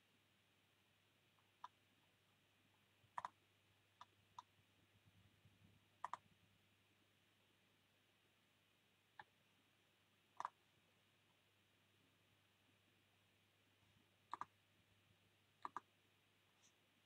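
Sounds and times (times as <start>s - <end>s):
computer mouse clicking: 1.4s - 1.8s, 3.1s - 3.4s, 4.0s - 4.5s, 6.0s - 6.3s, 10.4s - 10.6s, 14.3s - 14.6s, 15.6s - 15.9s.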